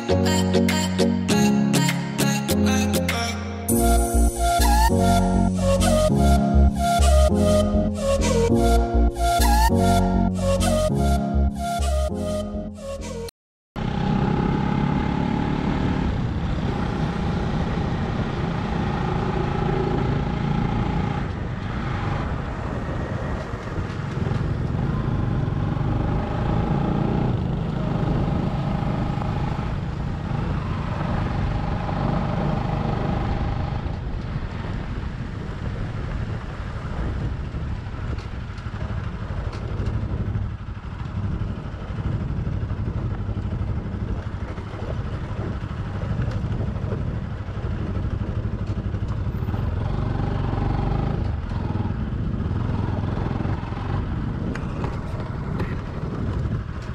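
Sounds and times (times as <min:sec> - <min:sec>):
high whine: 0:00.0 - 0:13.3
motorcycle engine running: 0:13.8 - 0:56.9
wind and road noise: 0:13.8 - 0:56.9.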